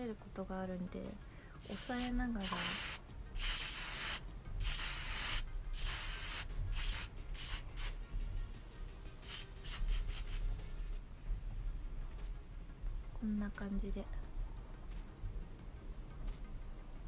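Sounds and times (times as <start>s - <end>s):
aerosol hairspray hissing: 1.6s - 8.0s, 9.2s - 10.5s.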